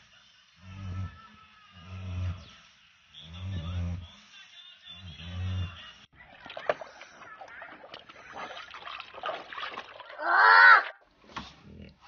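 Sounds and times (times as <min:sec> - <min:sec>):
puppy splashing in water: 0:06.2 - 0:11.1.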